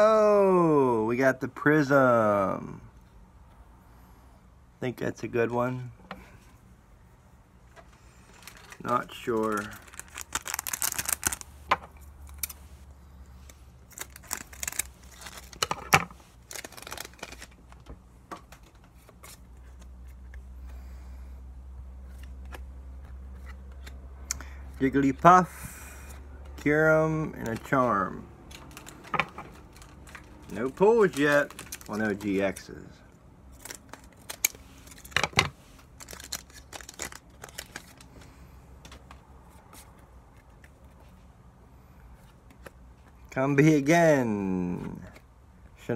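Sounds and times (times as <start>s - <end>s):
cards and plastic sleeves handled: 7.6s - 20.9s, 21.9s - 45.7s
foil wrapper crinkling and tearing: 8.2s - 11.6s, 13.8s - 17.8s, 27.4s - 32.8s, 33.5s - 35.2s, 35.8s - 38.3s.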